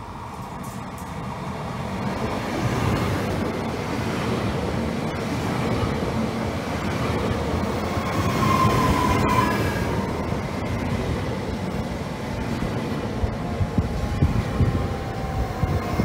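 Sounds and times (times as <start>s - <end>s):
train wheels rumbling on rail: 0.0s - 16.0s
high squeal: 7.9s - 10.2s.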